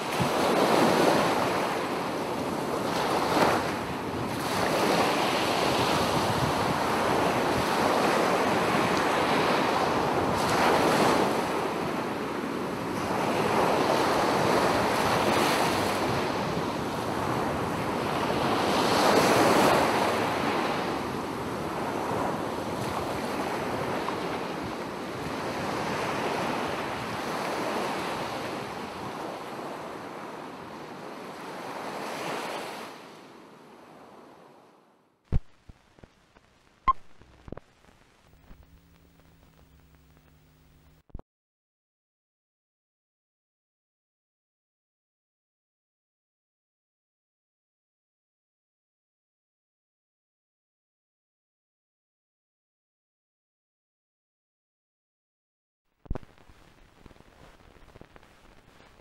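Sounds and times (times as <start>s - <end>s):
wind noise on microphone: 0.0s - 29.3s
sea waves washing in: 0.0s - 33.1s.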